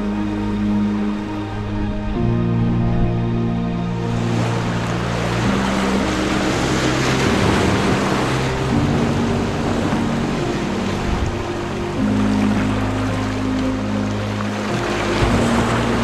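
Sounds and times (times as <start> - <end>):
soft background music: 0.0 - 16.0
waves breaking over rocks: 4.1 - 16.0.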